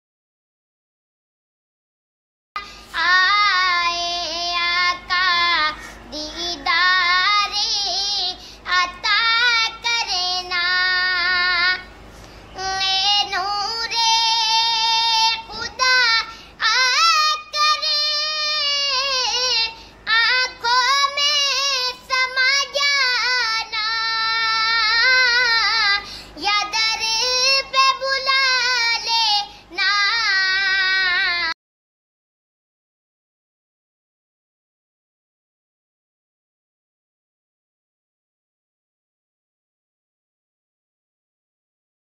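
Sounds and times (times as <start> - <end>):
child singing: 2.9 - 11.9, 12.5 - 31.6.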